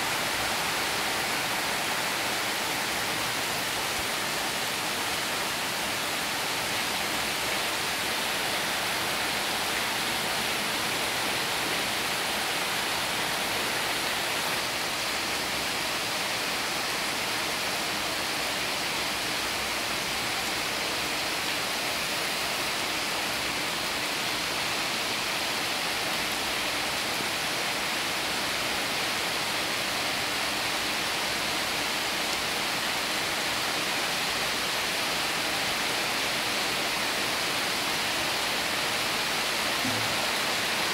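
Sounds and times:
heavy rain on tin roofs: 0.0 - 40.9.

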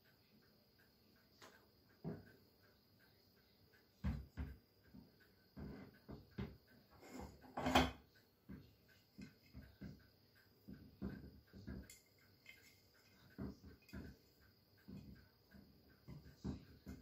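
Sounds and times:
metal scraping on wooden table: 6.9 - 8.0.

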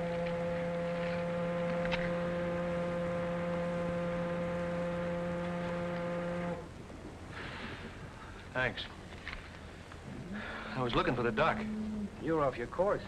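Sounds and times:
foghorn blast: 0.0 - 6.7, 10.3 - 12.2.

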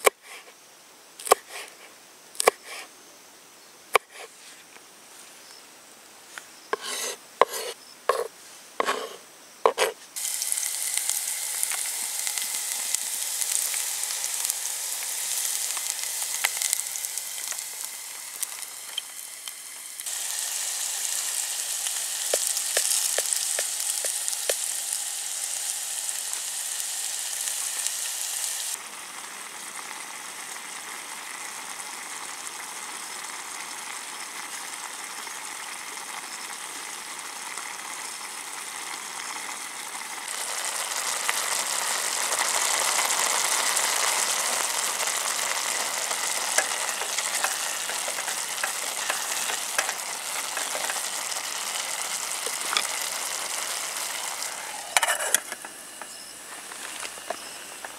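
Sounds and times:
food sizzling in a pot: 6.6 - 57.9
stirring clicks: 46.4 - 51.1.

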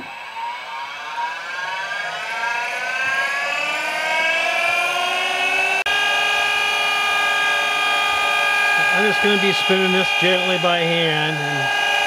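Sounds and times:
grinder motor whine spinning up: 0.0 - 12.0.

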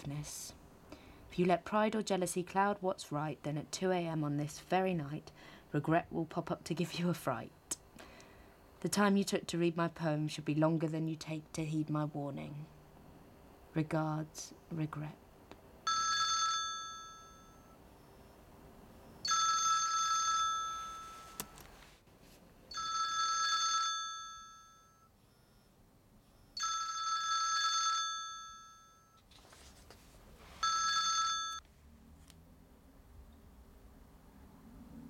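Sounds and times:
mobile phone ringing chime: 15.8 - 18.4, 19.0 - 21.5, 22.7 - 25.7, 26.3 - 29.2, 30.6 - 31.6.

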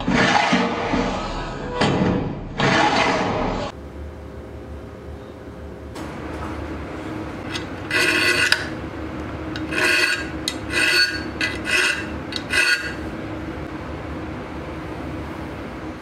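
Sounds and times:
hand file rasping on steel: 9.6 - 13.0.

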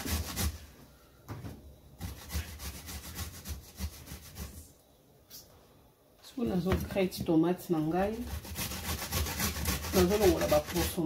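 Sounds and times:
tomato rasping on metal grater: 8.1 - 11.0.

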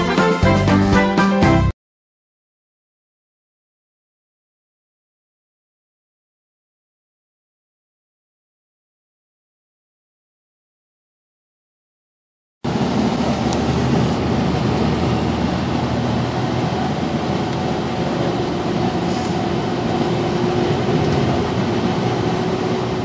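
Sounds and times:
bus engine running: 12.6 - 23.0
road rumble: 12.6 - 23.0.

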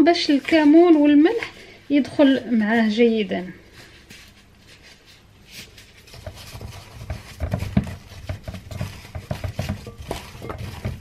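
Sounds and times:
hands rubbing aubergines: 3.7 - 11.0.

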